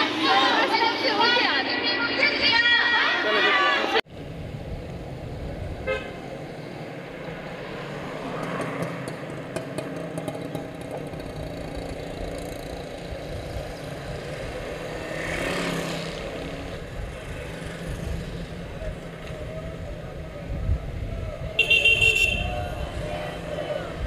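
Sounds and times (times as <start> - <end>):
vehicle engines running: 4.1 - 24.0
vehicle passing: 6.2 - 20.9, 21.6 - 24.0.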